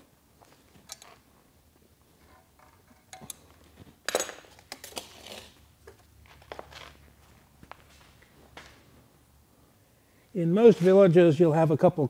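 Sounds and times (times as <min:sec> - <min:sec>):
pliers clinking on metal: 0:00.8 - 0:01.2, 0:02.6 - 0:03.5, 0:04.1 - 0:05.0.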